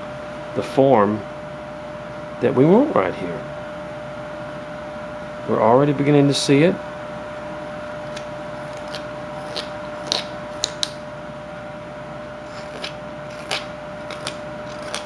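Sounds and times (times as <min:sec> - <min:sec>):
faint steady hum: 0:00.0 - 0:15.0
knife scraping wood: 0:08.1 - 0:11.0, 0:12.4 - 0:15.0.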